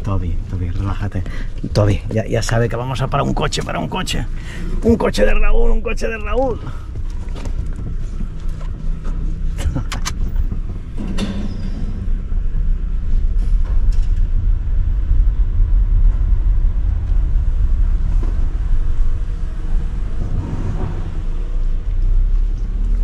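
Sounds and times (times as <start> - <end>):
car engine and tyres rumbling: 0.0 - 23.0.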